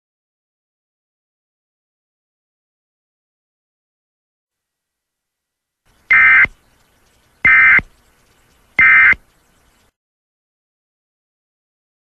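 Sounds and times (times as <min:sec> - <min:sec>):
short digital chirps: 0:06.1 - 0:06.5, 0:08.8 - 0:09.2.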